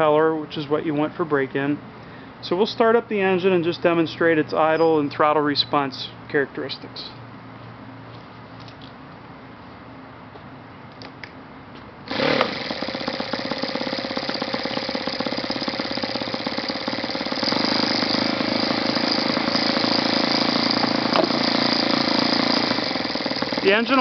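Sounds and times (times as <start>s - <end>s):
electric starter whirring: 12.0s - 24.0s
model engine idling: 12.1s - 24.0s.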